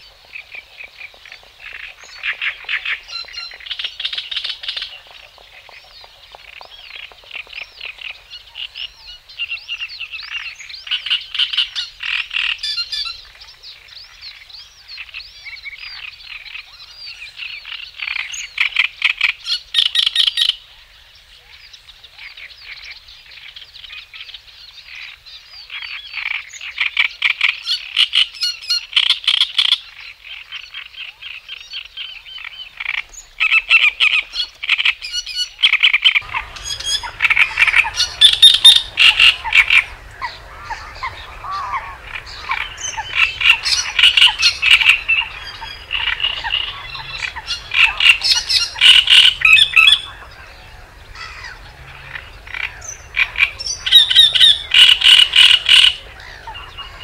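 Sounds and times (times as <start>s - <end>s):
high chirping trills: 36.2s - 57.0s.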